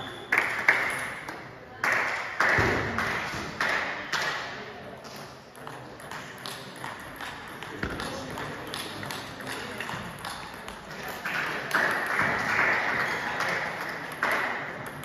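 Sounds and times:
thud echoing: 2.5s - 4.0s
table tennis ball taps: 5.6s - 10.8s.

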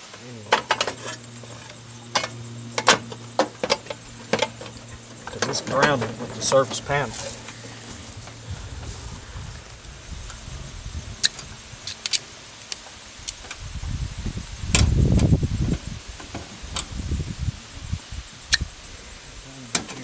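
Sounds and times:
low rumble: 1.2s - 11.8s.

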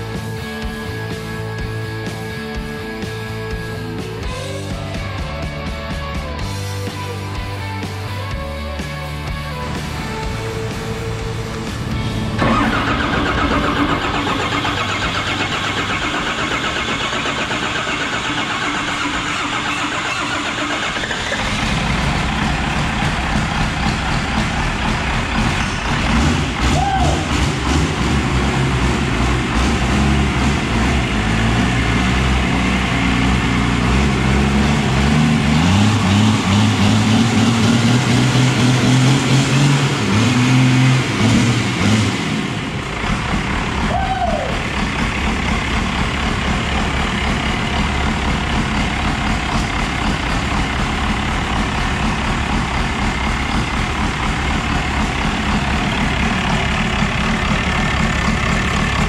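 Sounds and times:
background music: 0.0s - 20.4s
diesel engine idling: 0.0s - 59.0s.

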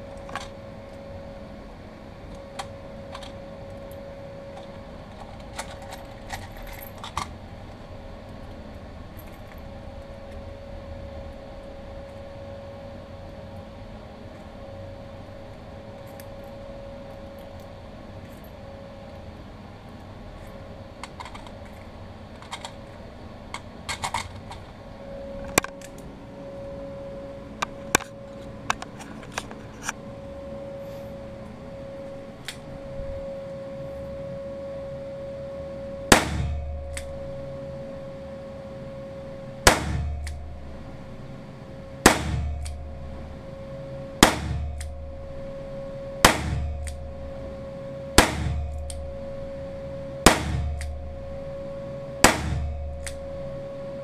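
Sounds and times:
extractor fan hum: 0.0s - 54.0s
metallic clicks of gun handling: 20.4s - 22.8s, 23.5s - 24.7s
gunshots with echo: 36.1s - 36.6s, 39.7s - 40.2s, 42.0s - 42.7s, 44.2s - 44.8s, 46.2s - 46.8s, 48.2s - 48.8s, 50.3s - 50.8s, 52.2s - 52.8s.

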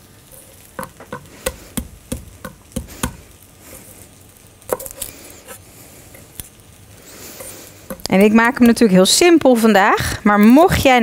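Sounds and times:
knife chopping on wooden board: 0.8s - 3.2s.

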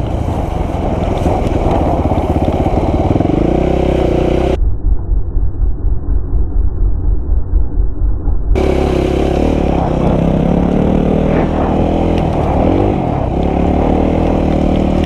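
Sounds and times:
motorcycle engine revving: 0.0s - 4.6s, 8.5s - 15.0s.

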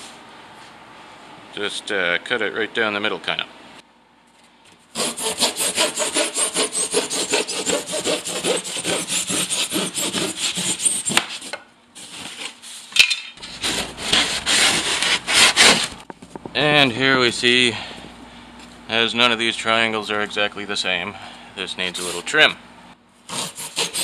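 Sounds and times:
knife sawing through foam board: 5.0s - 12.5s, 13.4s - 16.0s, 23.3s - 24.0s.

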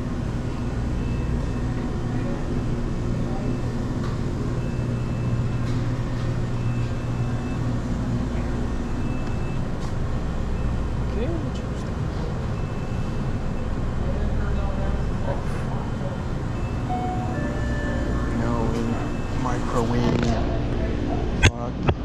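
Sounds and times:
refrigeration hum: 0.0s - 22.0s
faint short high beeps: 16.6s - 20.1s.

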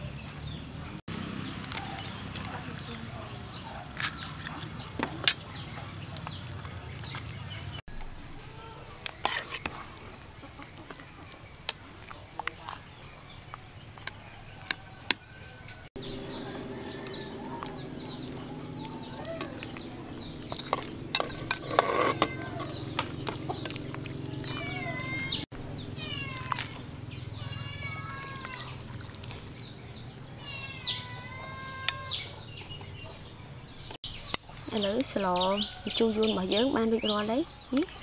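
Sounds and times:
steady low hum: 16.0s - 26.0s
high chirping bird calls: 16.0s - 38.0s
metal ladle clinking on pot: 20.5s - 22.7s.

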